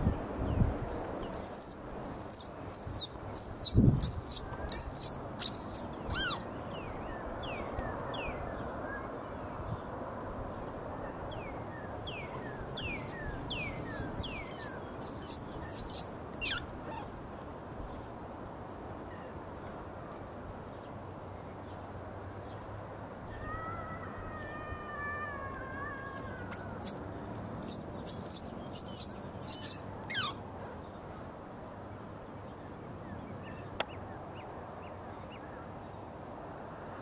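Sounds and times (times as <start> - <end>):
baby squirrel squeaking: 0.9 - 6.4, 12.9 - 16.7, 26.0 - 30.4.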